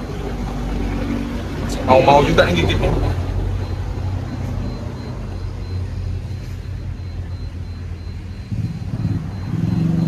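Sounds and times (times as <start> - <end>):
motor rumbling with whine: 0.0 - 10.0.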